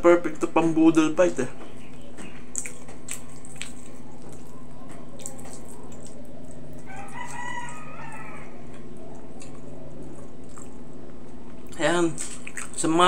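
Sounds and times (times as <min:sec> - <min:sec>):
steady low hum: 0:00.0 - 0:13.0
soft clicks of eating: 0:01.6 - 0:07.8, 0:08.7 - 0:12.8
rooster crowing: 0:06.8 - 0:08.8.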